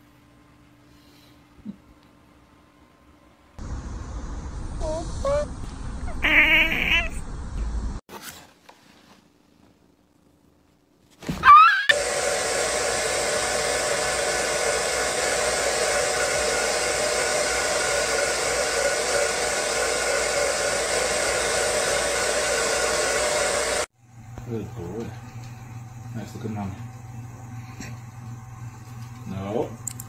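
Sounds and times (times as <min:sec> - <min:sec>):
bird squawking: 0:06.1 - 0:07.2
hair dryer blowing: 0:11.9 - 0:25.0.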